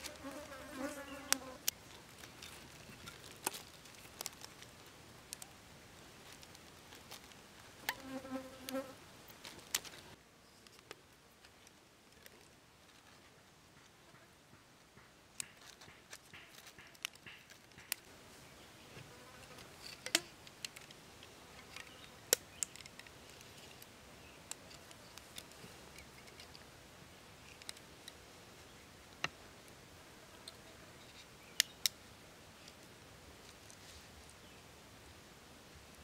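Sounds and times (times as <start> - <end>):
wooden stakes clicking and tapping: 1.3 - 5.6, 6.2 - 12.6, 14.5 - 18.1, 19.6 - 26.7.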